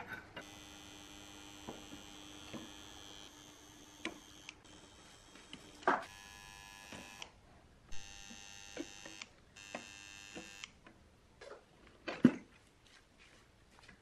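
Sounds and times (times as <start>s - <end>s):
high electric whine: 0.4s - 7.3s, 7.9s - 10.7s.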